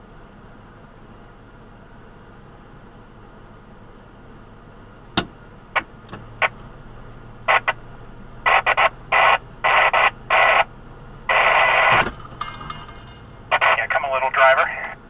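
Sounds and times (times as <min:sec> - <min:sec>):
faint engine hum: 0:00.0 - 0:15.0
radio static bursts: 0:07.4 - 0:07.8, 0:08.4 - 0:10.7, 0:11.3 - 0:12.2, 0:13.5 - 0:15.0
radio clicks: 0:07.5 - 0:07.8.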